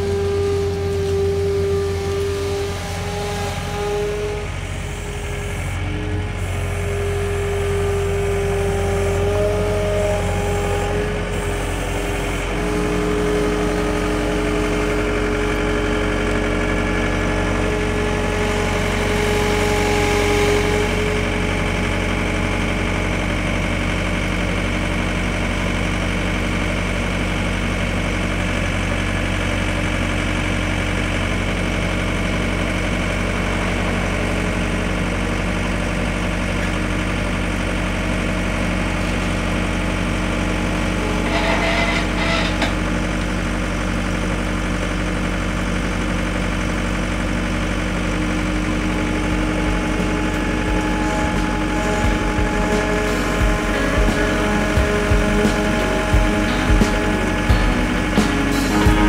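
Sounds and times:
diesel engine running: 0.0s - 59.0s
short high-pitched sound: 51.4s - 59.0s.

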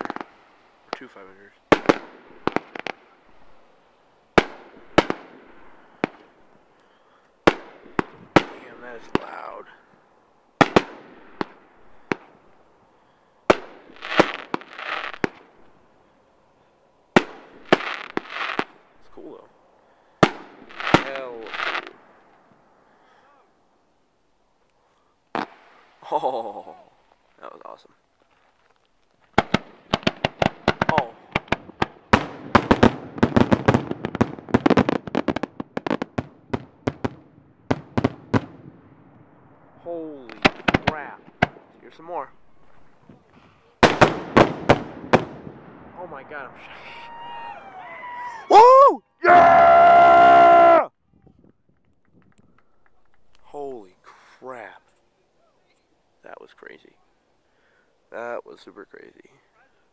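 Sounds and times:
firework shells bursting: 0.0s - 3.6s, 4.3s - 9.6s, 10.6s - 12.5s, 13.4s - 15.7s, 20.2s - 22.4s, 28.3s - 38.6s, 40.3s - 43.0s.

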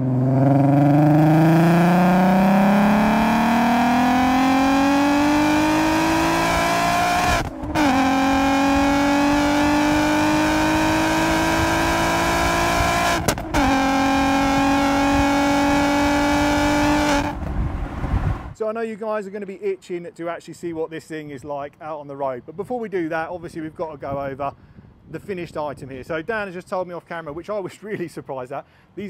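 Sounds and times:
van engine accelerating hard: 0.0s - 18.6s.

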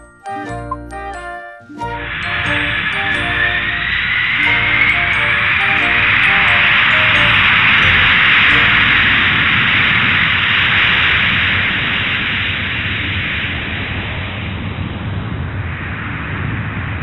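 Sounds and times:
loud steady hiss: 2.0s - 13.5s.

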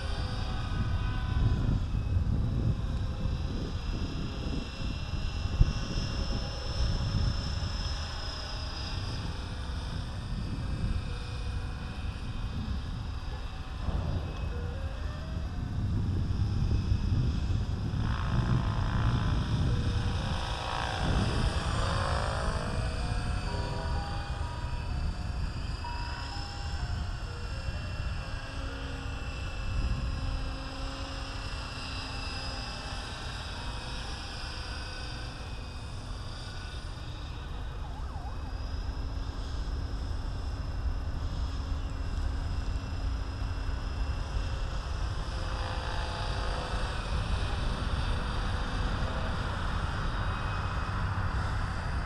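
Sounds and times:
rc helicopter motor whine: 0.0s - 52.0s
wind rumble on microphone: 0.0s - 52.0s.

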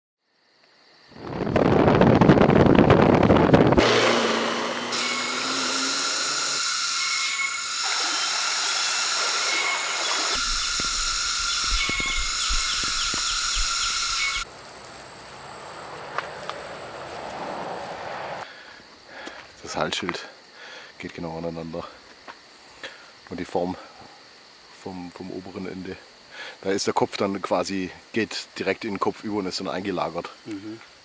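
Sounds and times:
high-pitched insect chorus: 0.2s - 3.8s, 5.1s - 31.0s
road and wind noise: 1.1s - 5.6s, 10.8s - 18.5s
car driving on rough track: 2.8s - 5.6s
quiet forest ambience: 5.5s - 31.0s.

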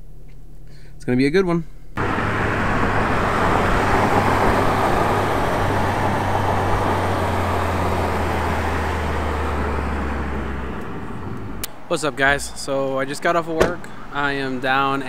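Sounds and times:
low engine drone: 2.0s - 11.8s
road and wind noise in car: 2.0s - 15.0s.

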